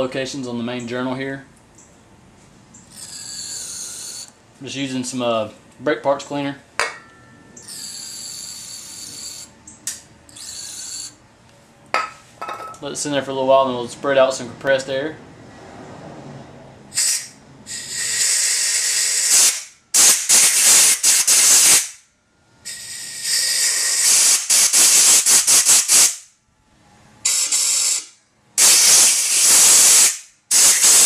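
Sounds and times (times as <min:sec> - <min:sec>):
compressed air blow gun hissing: 0:16.9 - 0:21.9, 0:22.6 - 0:26.2, 0:27.2 - 0:31.0.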